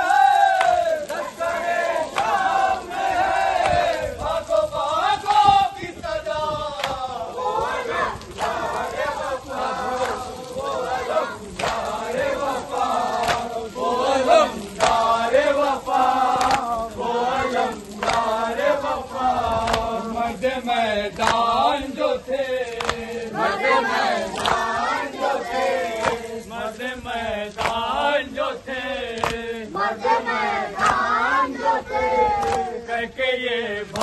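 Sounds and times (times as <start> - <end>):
men chanting together: 0.0 - 34.0
sharp slapping strikes: 13.2 - 13.5, 22.7 - 23.1, 27.6 - 27.9, 29.2 - 29.5, 30.8 - 31.1.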